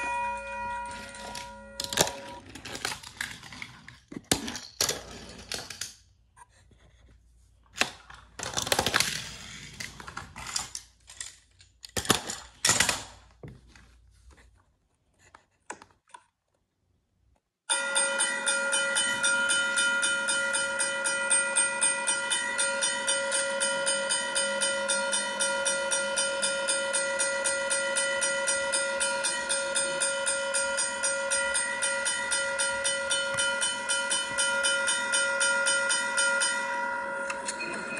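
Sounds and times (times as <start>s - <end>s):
railroad crossing warning bell: 0.0s - 2.4s, 17.7s - 37.9s
toy train pieces clicking on floor: 0.9s - 6.0s.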